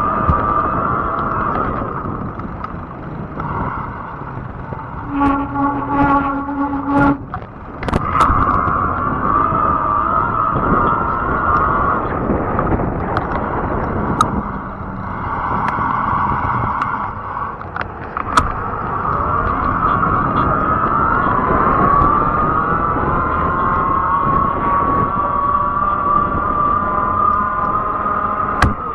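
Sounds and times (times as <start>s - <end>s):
tyre rumble: 0.0s - 21.0s
electric bike motor whine: 0.0s - 28.9s
wind: 0.0s - 28.9s.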